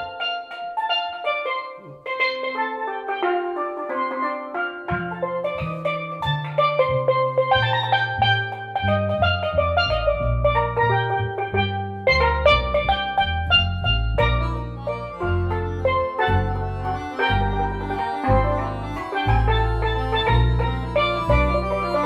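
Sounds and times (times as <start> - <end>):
steel pan notes: 0.0 - 22.0
double bass line: 0.8 - 22.0
accordion: 13.8 - 22.0.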